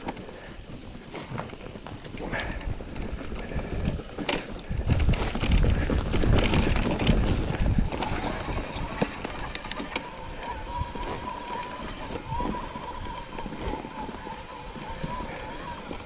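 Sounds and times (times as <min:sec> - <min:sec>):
bike rattling and knocking: 0:00.0 - 0:16.0
wind buffeting microphone: 0:00.3 - 0:16.0
scattered clicks: 0:03.8 - 0:10.6.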